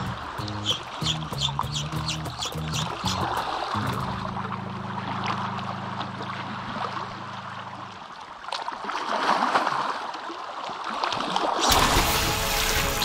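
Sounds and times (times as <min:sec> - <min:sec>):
background music low note: 0:00.0 - 0:08.3
sea water lapping on shore: 0:00.0 - 0:13.0.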